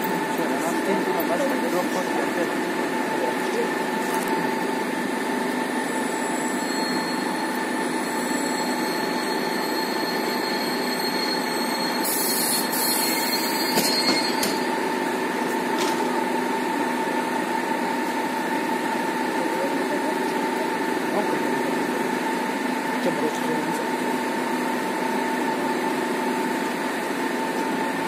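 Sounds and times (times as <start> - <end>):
standing train humming: 0.0 - 28.0
thin high squeal: 5.9 - 14.7.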